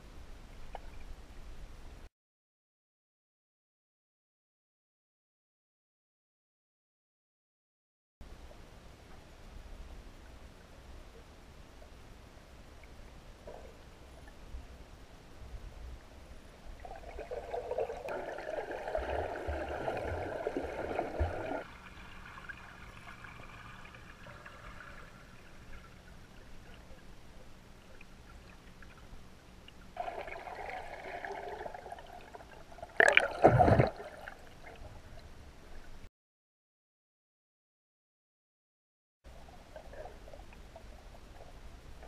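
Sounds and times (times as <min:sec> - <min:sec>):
underwater gurgling and sloshing: 0:08.4 - 0:36.1, 0:39.3 - 0:42.0.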